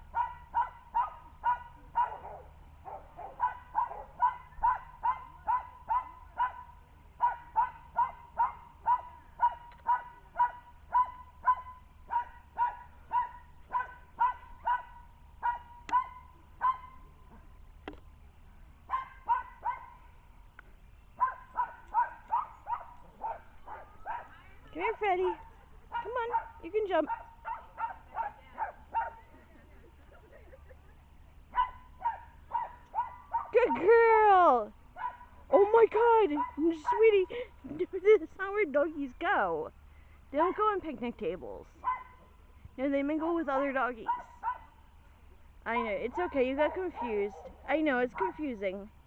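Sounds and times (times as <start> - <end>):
dog barking: 0.1 - 17.0, 18.9 - 20.0, 21.2 - 24.4, 25.9 - 29.2, 31.5 - 33.8, 35.0 - 35.3, 41.8 - 42.2, 44.1 - 44.8.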